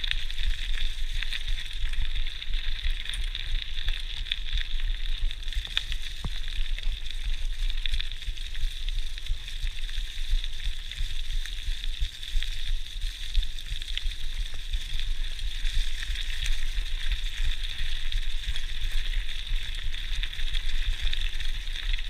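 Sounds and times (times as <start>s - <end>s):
bike tyres on leafy gravel: 0.0s - 22.0s.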